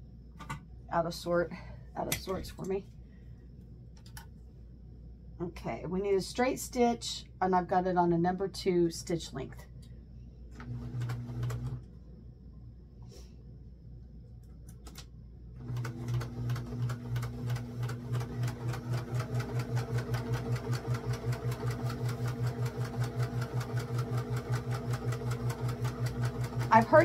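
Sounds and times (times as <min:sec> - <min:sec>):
electric sewing machine stitching: 0:10.6 - 0:11.8, 0:15.6 - 0:27.0.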